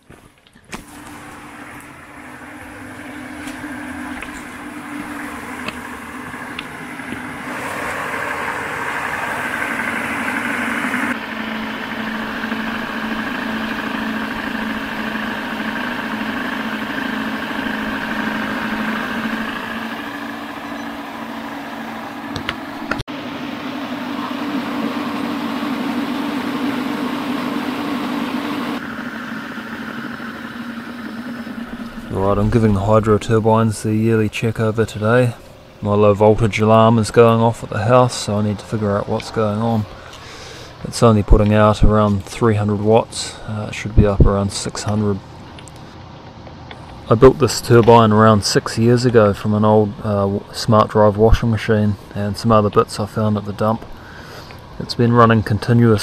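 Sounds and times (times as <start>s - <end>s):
generator hum: 0.0s - 56.0s
water jet hissing: 0.7s - 23.0s, 23.8s - 42.1s.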